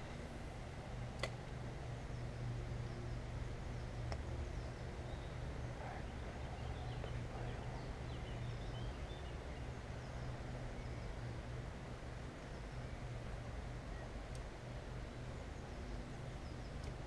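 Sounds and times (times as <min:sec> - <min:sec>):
steady low hum: 0:00.0 - 0:17.0
small birds chirping: 0:01.9 - 0:11.4, 0:15.1 - 0:17.0.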